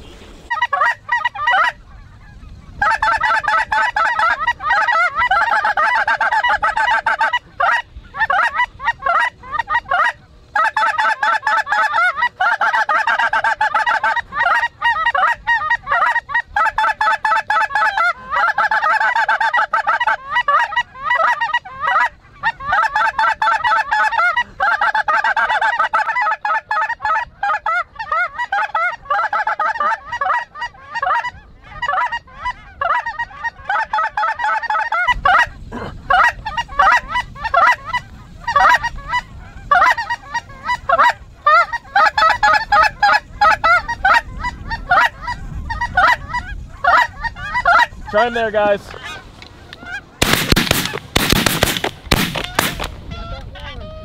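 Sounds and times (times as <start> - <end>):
geese honking: 0.0 - 54.0.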